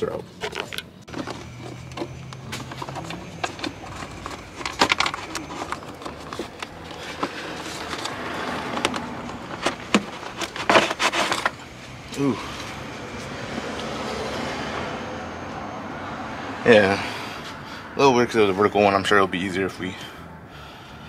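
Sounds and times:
filter scraping rustle: 0:00.1 - 0:13.8.

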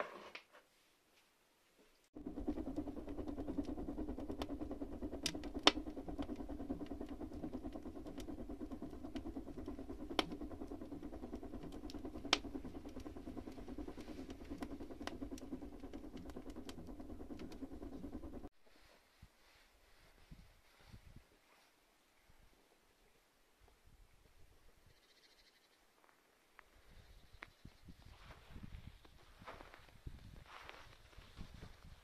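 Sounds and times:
burning wood crackling: 0:02.2 - 0:18.5
fire flames rumbling in stove: 0:02.2 - 0:18.5.

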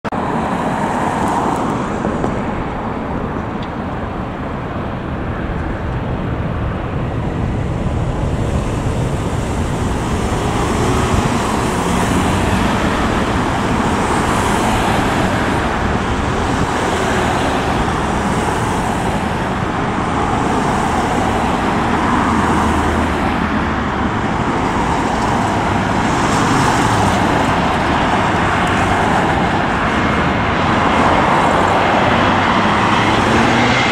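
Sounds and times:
road traffic with cars passing: 0:00.0 - 0:33.9
airliner engines: 0:00.1 - 0:33.9.

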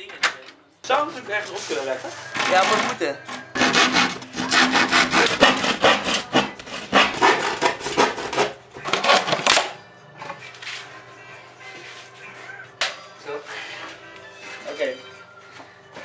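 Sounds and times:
handsaw cutting through wood: 0:02.5 - 0:09.3.

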